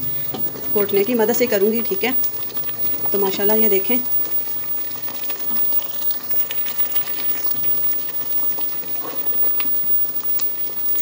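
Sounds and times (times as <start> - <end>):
thick porridge bubbling: 0.0 - 11.0.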